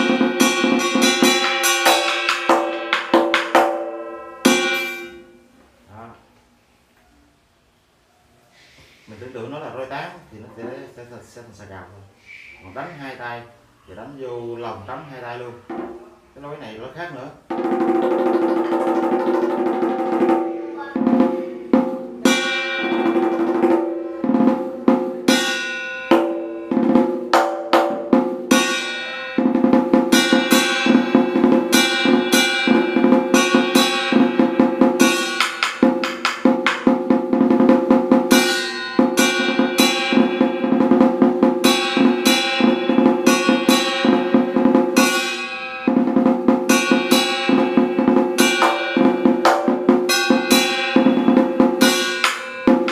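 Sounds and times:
drum played with sticks: 0.0s - 5.4s, 15.6s - 16.2s, 17.4s - 52.9s.

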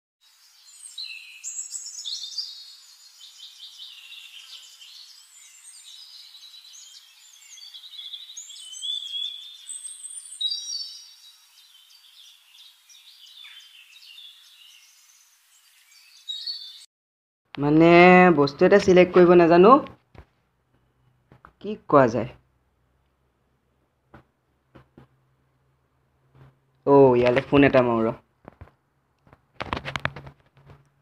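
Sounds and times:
birds chirping and singing: 0.3s - 16.9s.

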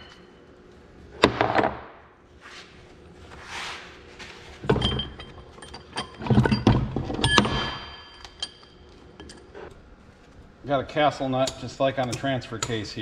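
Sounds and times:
heavy steel parts clunking: 4.6s - 9.5s
metallic ring: 4.8s - 9.5s.

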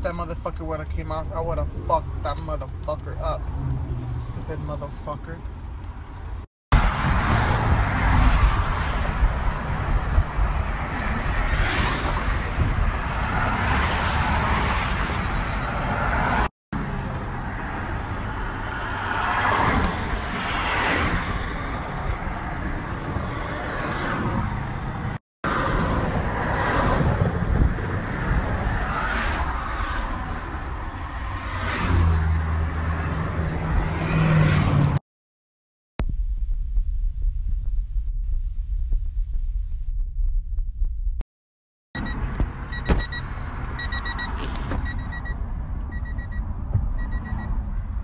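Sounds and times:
freeway traffic roar: 0.0s - 35.0s, 42.0s - 48.0s
deep engine hum: 36.0s - 41.2s.

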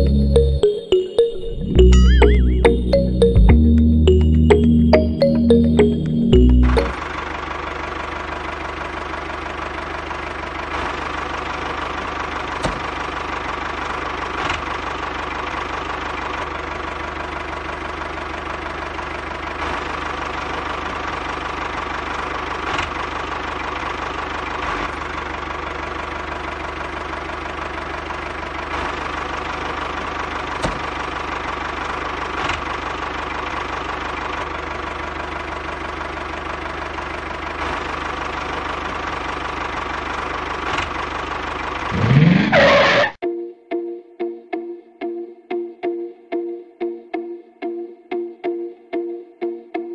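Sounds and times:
small engine-like drone: 41.8s - 43.2s.

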